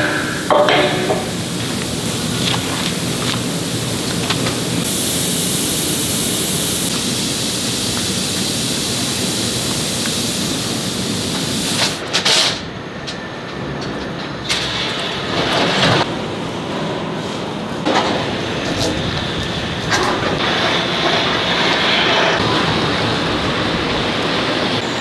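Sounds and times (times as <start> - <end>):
high hiss: 0.0 - 12.0
factory machinery hum: 0.0 - 25.0.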